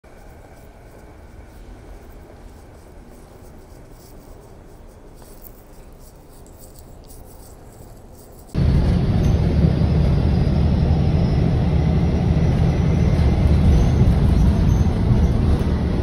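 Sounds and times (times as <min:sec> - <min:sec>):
soft footsteps: 0:00.1 - 0:08.6
low vehicle rumble: 0:08.5 - 0:16.0.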